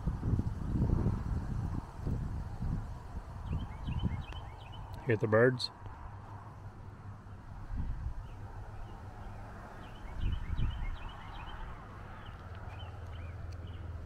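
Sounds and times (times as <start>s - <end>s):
wind rumble on microphone: 0.0s - 5.1s, 5.8s - 14.0s
songbirds chirping: 2.4s - 14.0s.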